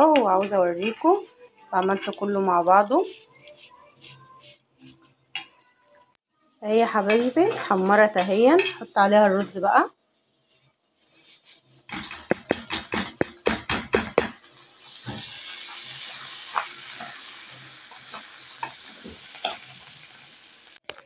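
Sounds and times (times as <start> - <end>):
food sizzling: 6.4 - 21.0
spoon scraping pot: 10.5 - 14.2.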